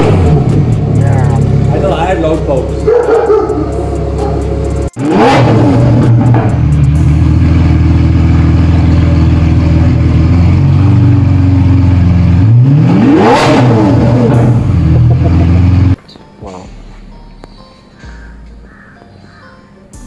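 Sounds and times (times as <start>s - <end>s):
car engine idling and revving: 0.0s - 16.0s.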